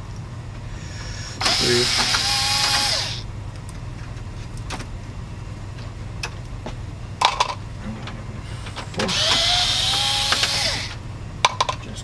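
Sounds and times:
electric screwdriver motor: 1.4 - 3.2, 9.1 - 11.0.

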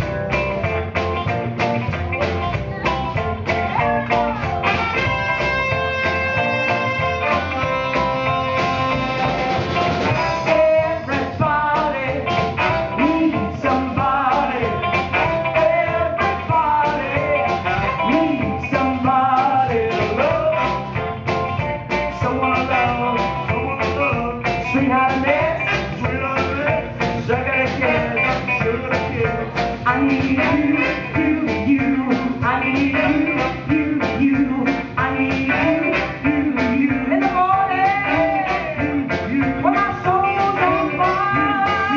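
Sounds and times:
drum kit beat: 0.0 - 41.9
electric bass: 0.0 - 41.9
soul and funk band playing: 0.0 - 41.9
saxophone: 3.7 - 10.5, 40.5 - 41.9
woman singing: 29.4 - 41.9.

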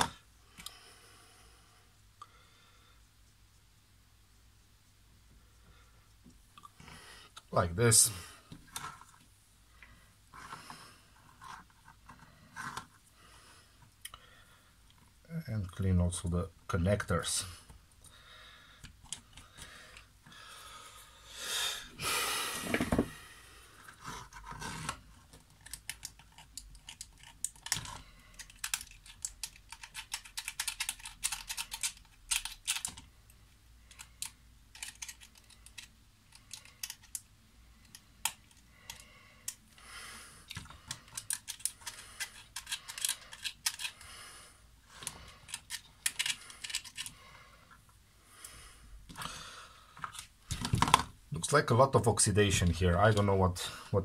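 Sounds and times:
small tool scraping plastic: 8.5 - 9.2, 10.3 - 13.1, 23.8 - 33.1, 33.9 - 39.6, 40.4 - 44.1, 44.9 - 47.2.

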